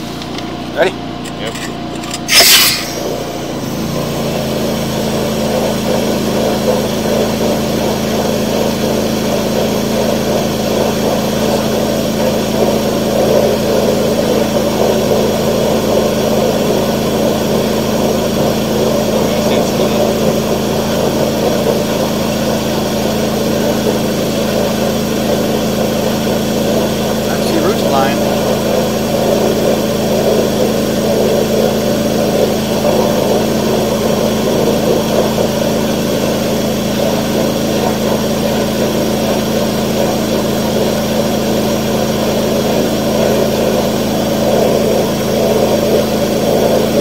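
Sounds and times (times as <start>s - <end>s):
engine and pump humming: 0.0s - 47.0s
water jetting through pipe: 2.0s - 47.0s
short loud hiss: 2.2s - 3.2s.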